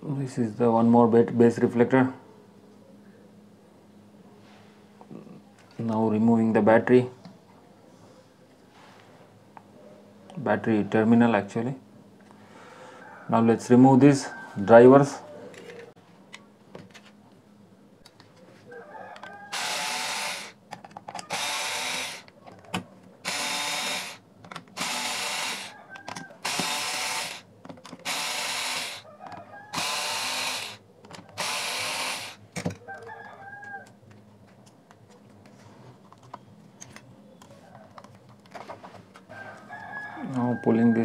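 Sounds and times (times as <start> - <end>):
electric screwdriver whirring: 19.5 - 20.6, 21.2 - 22.3, 23.2 - 25.7, 26.4 - 29.0, 29.7 - 30.8, 31.4 - 32.4.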